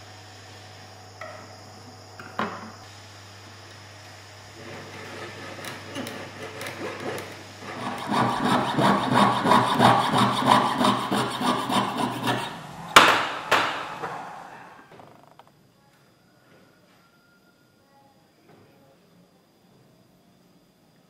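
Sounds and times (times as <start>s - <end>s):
saw blade cutting through metal: 5.4s - 14.5s.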